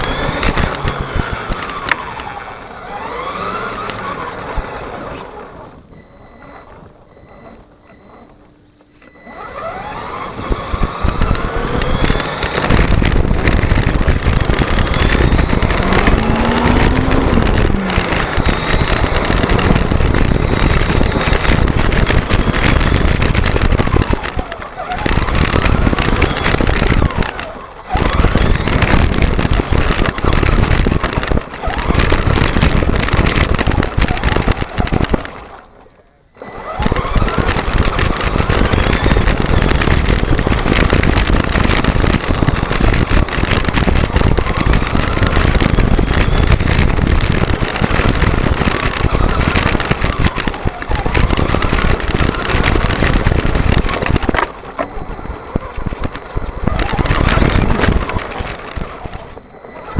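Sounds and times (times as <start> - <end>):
tyres rattling on gravel: 0.0 - 5.2, 9.4 - 35.8, 36.4 - 59.9
electric motor whine: 0.0 - 5.6, 9.2 - 35.5, 36.4 - 59.9.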